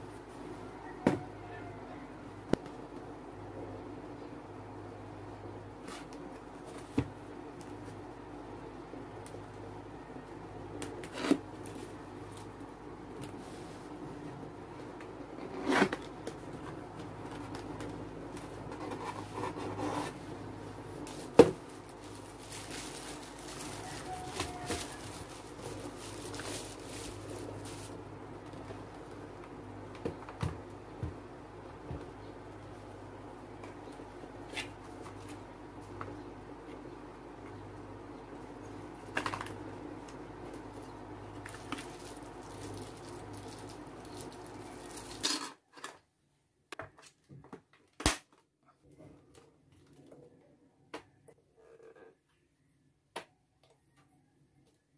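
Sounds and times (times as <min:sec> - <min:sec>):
room hum: 0:00.0 - 0:54.9
plastic bag rustling and crinkling: 0:15.8 - 0:29.2, 0:40.6 - 0:45.4.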